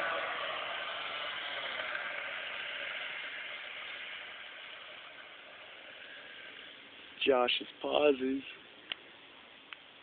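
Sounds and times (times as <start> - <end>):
distant two-stroke motorbike engine: 0.0 - 7.2.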